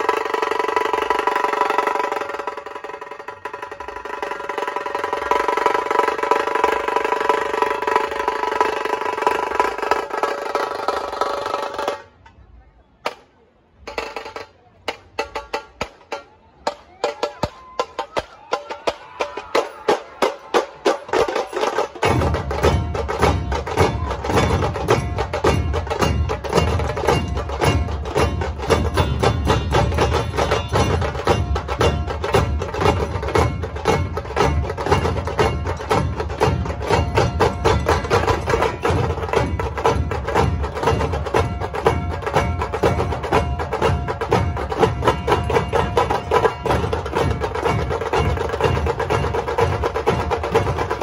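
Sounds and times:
large drums beating: 0:13.8 - 0:51.0.

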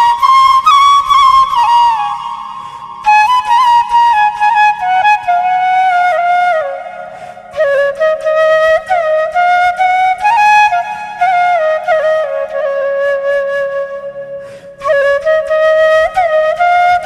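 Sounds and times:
solo flute melody: 0:00.0 - 0:17.0.

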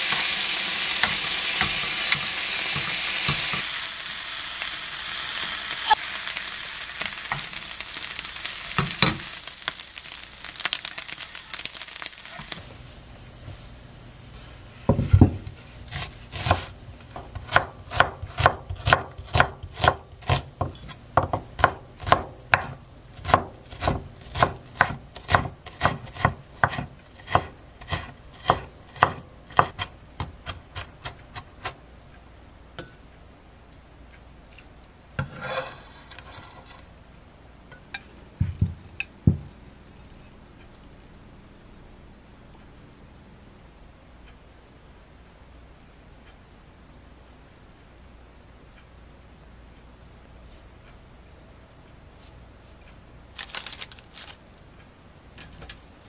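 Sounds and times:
knife chopping on wooden board: 0:15.0 - 0:31.8.

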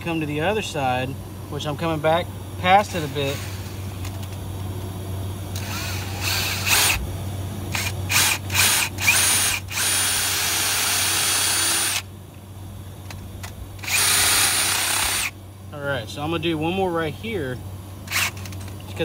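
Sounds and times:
power drill boring into metal: 0:13.8 - 0:15.3.

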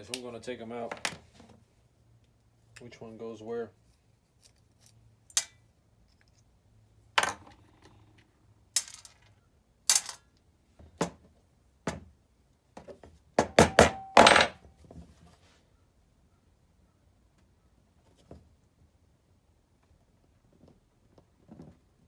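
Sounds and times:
metal parts knocking and clinking: 0:08.7 - 0:10.3, 0:13.5 - 0:14.6.

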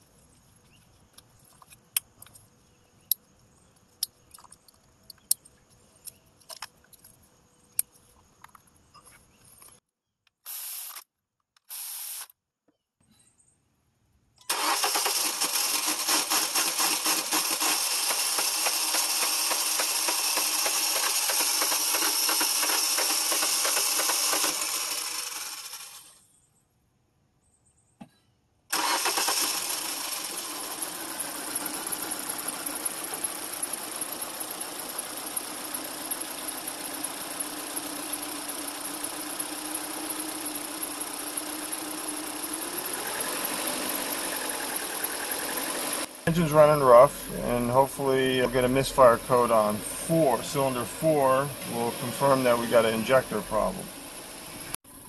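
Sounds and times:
car engine starting and running rough: 0:14.5 - 0:26.2, 0:28.7 - 0:55.0.

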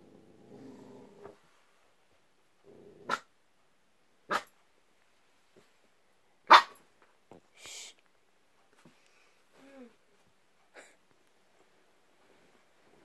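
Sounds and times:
puppy growling: 0:00.0 - 0:01.4
puppy barking: 0:04.3 - 0:04.5, 0:06.5 - 0:06.8.

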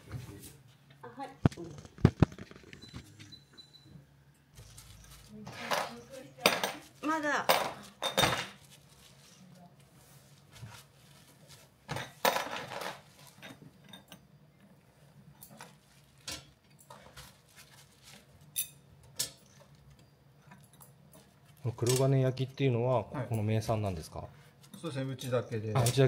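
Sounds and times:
dishes and utensils clattering: 0:05.5 - 0:08.6.

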